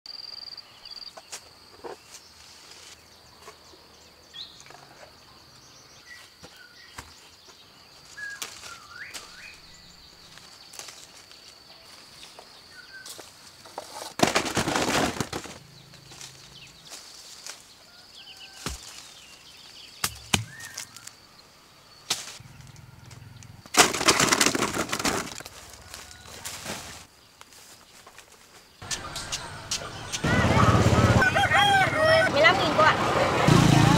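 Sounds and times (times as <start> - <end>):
rustle of leaves and branches: 1.1 - 3.9, 6.0 - 30.2
bird chirps: 3.3 - 10.8, 17.8 - 23.6, 28.8 - 30.8.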